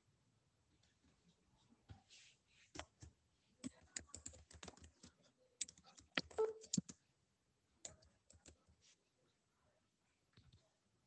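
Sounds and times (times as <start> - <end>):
keyboard typing: 2.7 - 7.0, 7.8 - 8.7.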